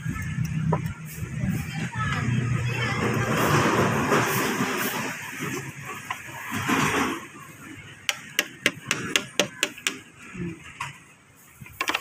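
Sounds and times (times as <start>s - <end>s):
taps on a plastic plate: 8.1s - 10.0s.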